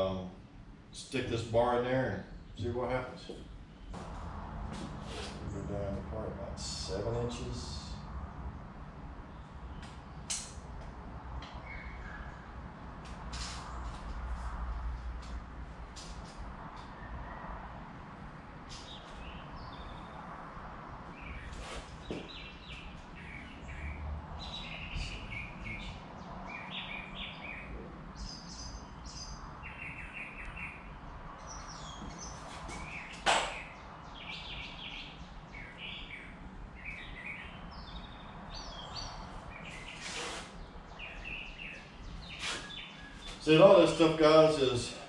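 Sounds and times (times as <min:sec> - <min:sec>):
small birds chirping: 0:09.2 - 0:14.5, 0:18.6 - 0:20.4, 0:21.0 - 0:45.0
sharp knock: 0:33.2 - 0:33.6.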